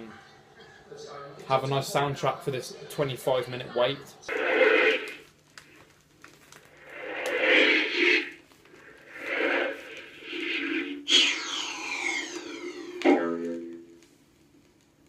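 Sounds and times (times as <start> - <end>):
noisy whooshing effects: 4.3 - 5.3, 6.7 - 13.8
comedy sound effects from record player: 4.3 - 5.4, 6.7 - 14.1
sound effect falling in pitch: 11.1 - 13.9.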